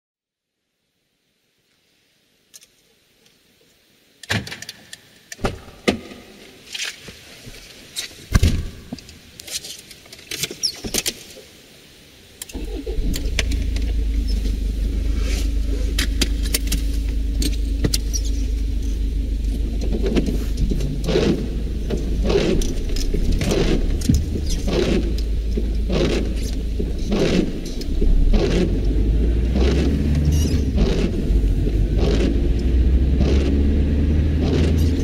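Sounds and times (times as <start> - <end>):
car engine starting and idling: 12.4 - 35.0
windscreen wipers sweeping: 12.5 - 35.0
scattered clicks: 19.4 - 33.6, 34.4 - 35.0.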